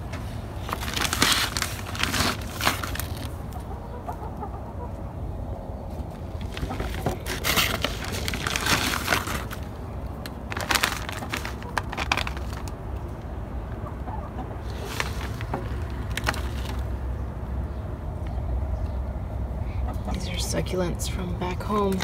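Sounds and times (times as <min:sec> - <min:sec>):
plastic bags crinkling: 0:00.6 - 0:03.4, 0:06.3 - 0:12.8, 0:14.6 - 0:17.0
chickens clucking: 0:03.2 - 0:08.2, 0:11.2 - 0:17.0, 0:19.6 - 0:21.0.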